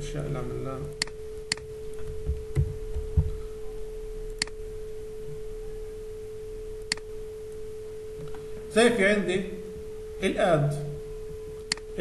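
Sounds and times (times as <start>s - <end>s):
soft low thuds: 1.9s - 3.7s
computer mouse clicks: 4.3s - 4.6s, 6.8s - 7.1s, 11.7s - 11.9s.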